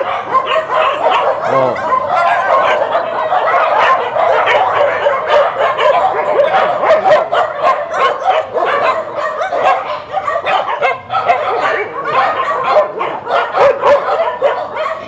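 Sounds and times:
many dogs barking: 0.0s - 15.0s.

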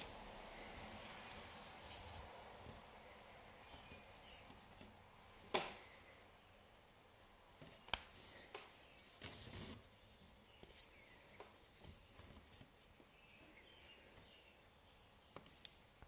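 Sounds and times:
yarn rustling: 0.0s - 5.1s.

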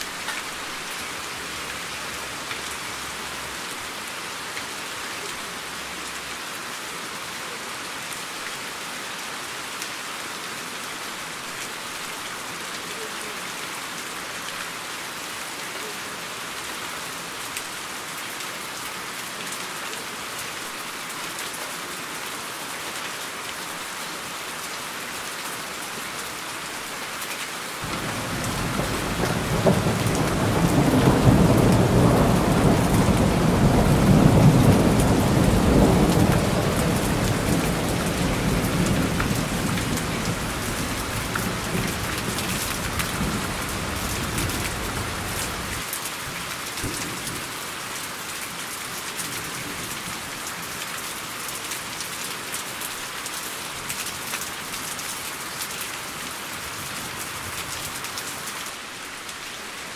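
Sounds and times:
steady rain falling: 0.0s - 59.9s
thunder rumbling: 27.8s - 42.3s.

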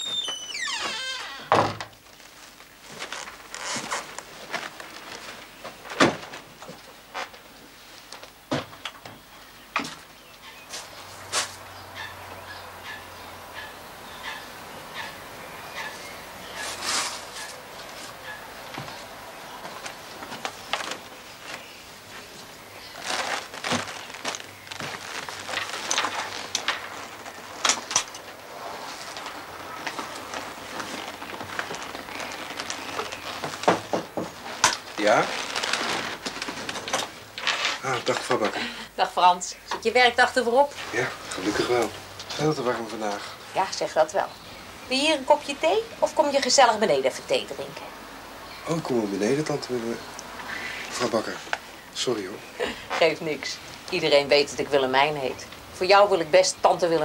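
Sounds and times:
cloth rustling: 2.0s - 8.5s, 16.5s - 38.5s
footsteps and handling knocks: 16.6s - 35.0s.

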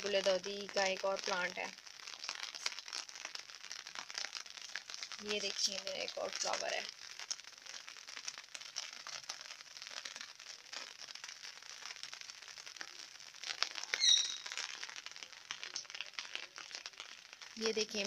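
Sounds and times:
light rain falling: 0.0s - 18.0s.

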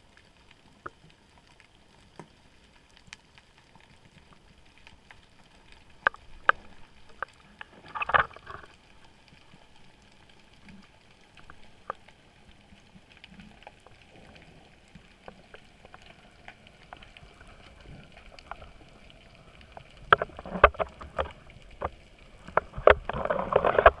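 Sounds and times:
underwater camera rig knocking: 6.0s - 8.6s, 20.1s - 24.0s.

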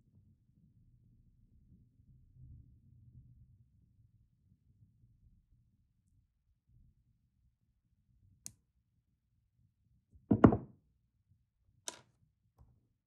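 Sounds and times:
pliers clattering on wooden desk: 10.3s - 10.6s.

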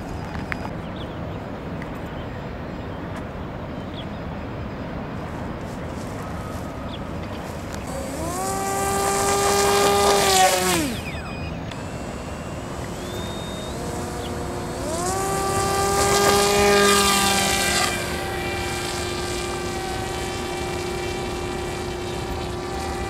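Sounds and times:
outdoor background noise: 0.0s - 23.0s
electric motor and propeller whine: 5.4s - 23.0s.

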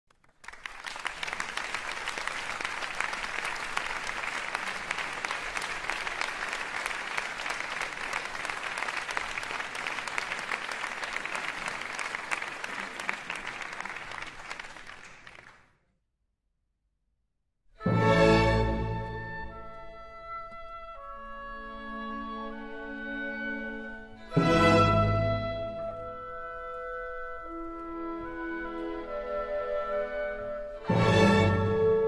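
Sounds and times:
audience applauding: 0.1s - 15.8s.

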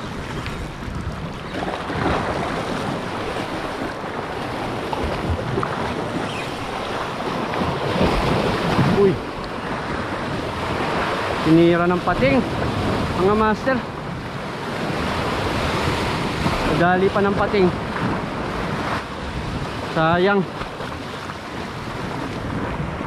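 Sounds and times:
surf washing against rocky shore: 0.0s - 23.0s
wind noise on microphone: 0.0s - 23.0s.

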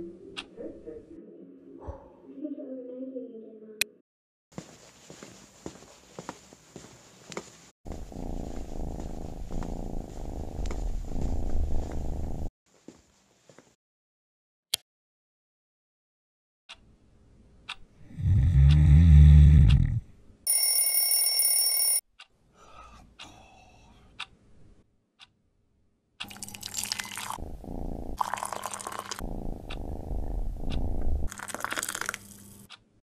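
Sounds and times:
steady ringing tone: 20.5s - 22.0s
tea pouring into cup: 26.2s - 27.4s, 28.2s - 29.2s, 31.3s - 32.4s
low heavy rumble: 29.2s - 31.3s.

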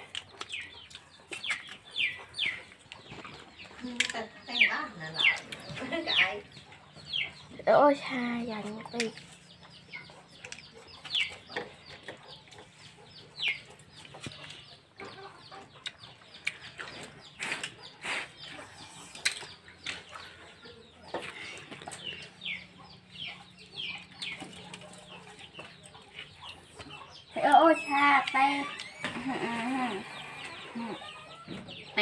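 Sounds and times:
chickens clucking and peeping: 0.0s - 32.0s.

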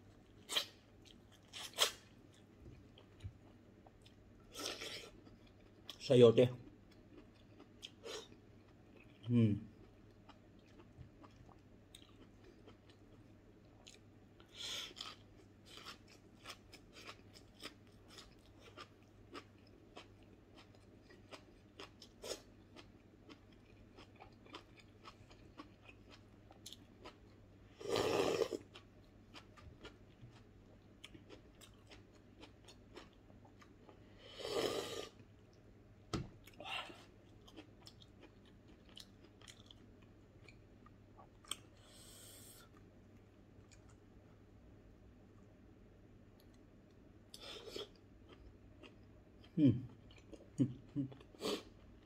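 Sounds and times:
person chewing crunchy food: 0.1s - 6.0s, 6.6s - 34.1s, 36.4s - 42.0s.

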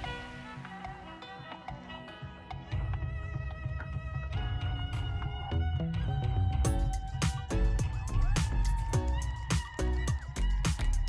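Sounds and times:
melodic music: 0.0s - 11.0s
heavy bass beat: 6.7s - 11.0s.

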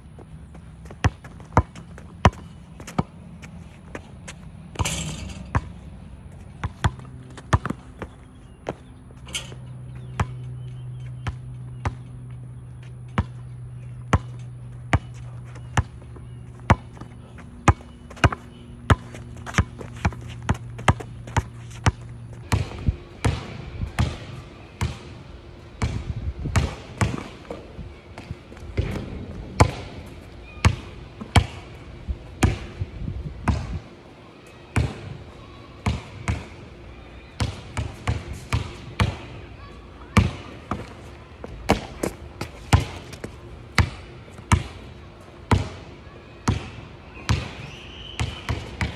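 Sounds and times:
basketball bouncing on hard court: 0.5s - 3.6s, 4.7s - 5.7s, 6.6s - 10.5s, 13.1s - 25.1s, 25.8s - 27.6s, 28.2s - 31.8s, 33.4s - 33.7s, 41.7s - 44.8s, 47.3s - 47.5s.

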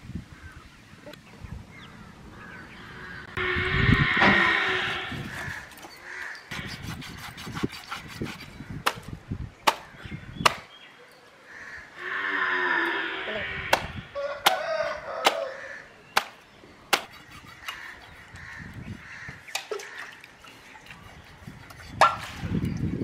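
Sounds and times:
crows cawing: 2.4s - 6.5s, 11.5s - 16.0s, 17.5s - 20.3s.

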